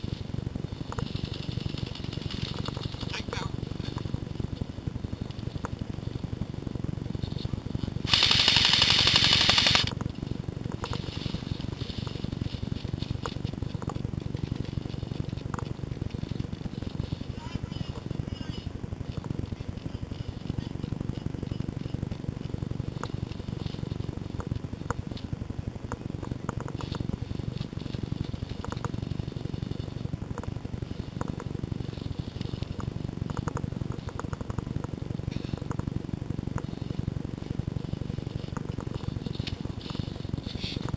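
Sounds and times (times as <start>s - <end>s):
handling and movement rumble: 0.0s - 8.2s, 9.8s - 40.9s
airsoft gun full-auto burst: 8.0s - 10.0s.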